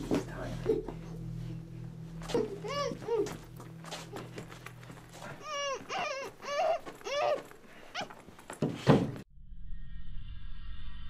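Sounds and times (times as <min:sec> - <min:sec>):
high-pitched whimpering cries: 0:05.1 - 0:08.2.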